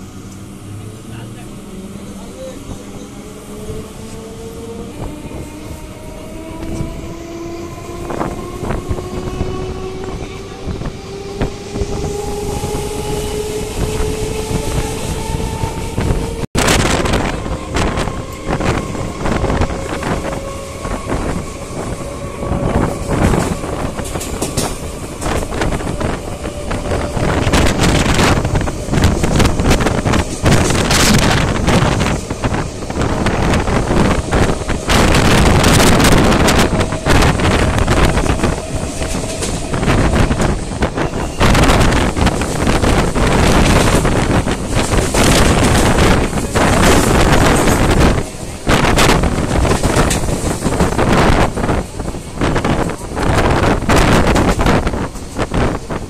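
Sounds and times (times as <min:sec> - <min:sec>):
wind buffeting microphone: 0:02.6 - 0:56.0.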